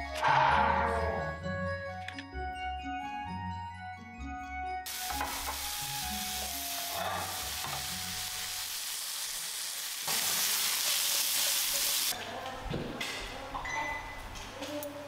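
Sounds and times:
soft keyboard music: 0:00.0 - 0:06.8
mushrooms sizzling in a pan: 0:04.9 - 0:12.2.

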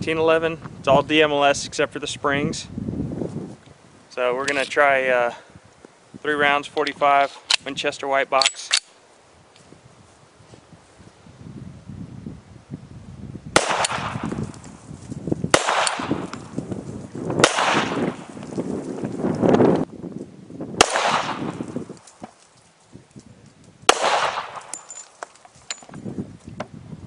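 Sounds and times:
pistol shots: 0:13.6 - 0:14.4, 0:15.5 - 0:16.4, 0:17.4 - 0:18.3, 0:20.8 - 0:21.7, 0:23.9 - 0:25.0.

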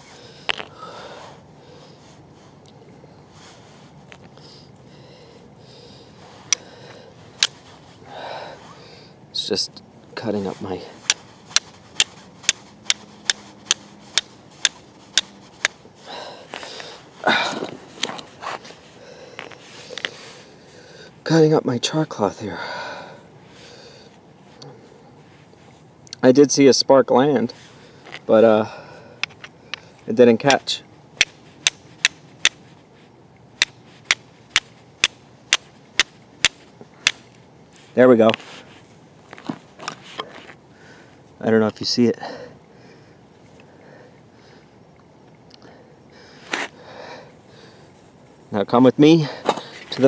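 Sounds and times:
short rustle: 0:10.2 - 0:20.8, 0:35.6 - 0:41.4
flint striking steel blade: 0:11.0 - 0:15.8, 0:31.2 - 0:32.7, 0:33.6 - 0:37.4
flint striking steel knife: 0:33.6 - 0:37.3.

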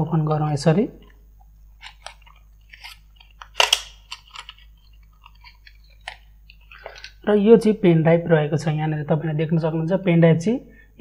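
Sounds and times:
plastic blister pack crinkling: 0:01.7 - 0:07.2.

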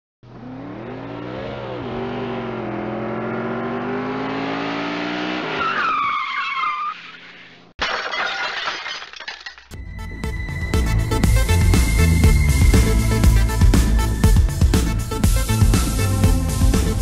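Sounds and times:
car engine revving: 0:00.2 - 0:05.6
tyres screeching: 0:05.5 - 0:07.7.

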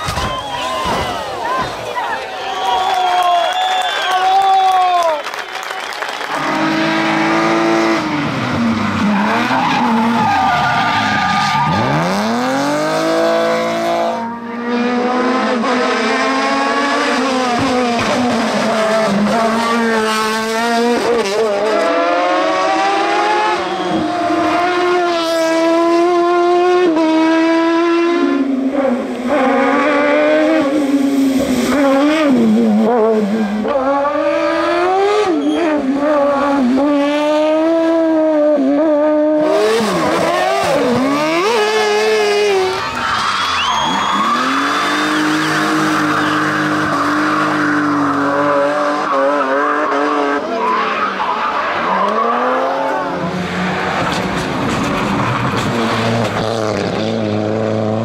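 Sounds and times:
racing car engines revving: 0:04.9 - 0:58.0
tyre squeal: 0:23.5 - 0:24.1, 0:35.2 - 0:35.8, 0:39.8 - 0:48.4.

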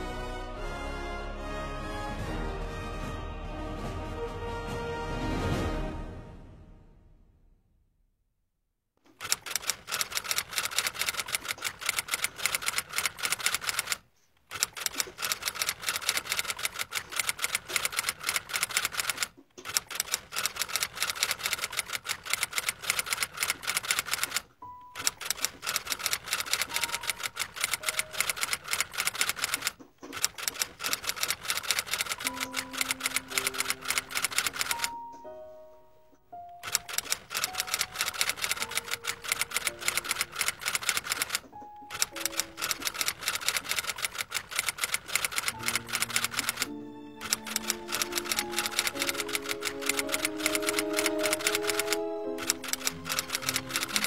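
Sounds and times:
fast typewriter typing: 0:09.1 - 0:35.0, 0:36.6 - 0:54.0.

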